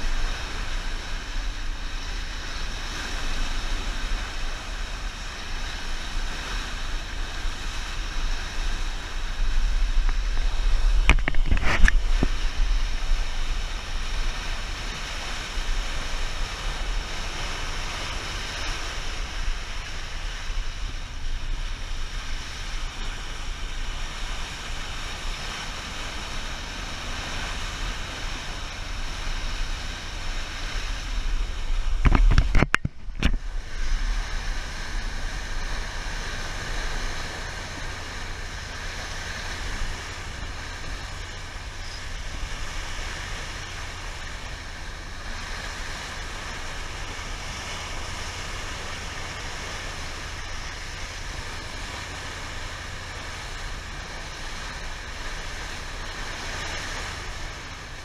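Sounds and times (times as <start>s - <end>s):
faint steady whine: 0.0s - 58.0s
water rushing along boat bow: 0.0s - 58.0s
wind buffeting microphone: 0.0s - 58.0s
knocks and splashes: 9.8s - 13.4s, 31.7s - 33.7s.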